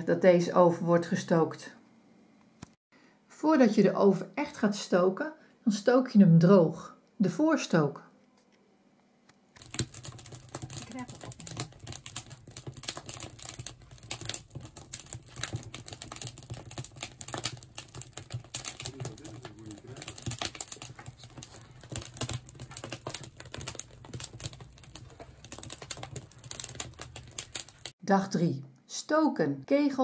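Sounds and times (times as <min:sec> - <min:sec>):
wood fire crackling and popping: 0:09.5 - 0:28.0.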